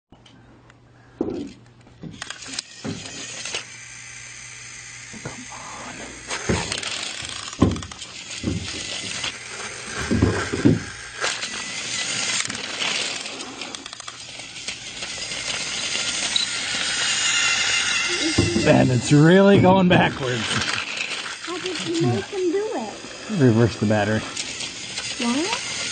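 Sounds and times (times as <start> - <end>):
toy train motor whirring: 1.4 - 25.9.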